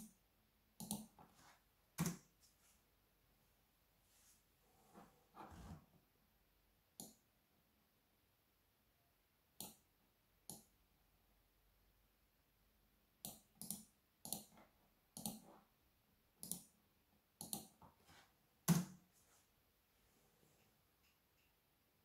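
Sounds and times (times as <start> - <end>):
computer mouse clicks: 0.8 - 1.2, 9.6 - 9.9, 10.5 - 10.7, 13.2 - 14.6, 15.2 - 15.5, 16.4 - 16.8, 17.4 - 17.8.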